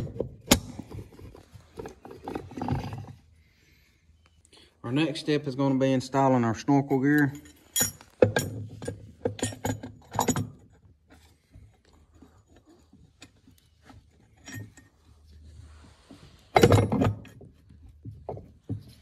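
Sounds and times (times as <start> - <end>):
metal gears clinking and clattering: 7.2 - 10.7.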